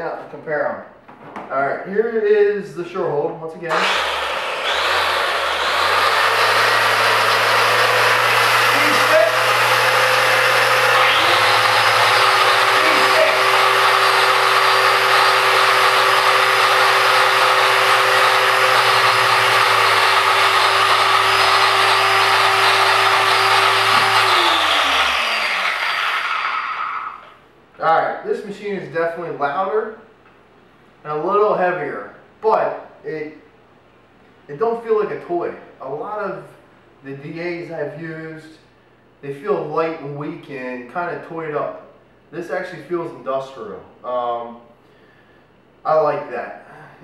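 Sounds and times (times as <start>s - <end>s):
electric car polishers running: 3.7s - 27.3s
falling whine of polishers: 3.7s - 27.4s.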